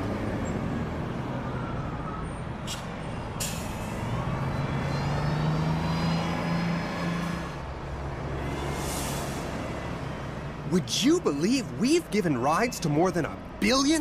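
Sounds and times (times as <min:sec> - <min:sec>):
air brakes hissing: 0:02.7 - 0:04.1, 0:08.6 - 0:09.7.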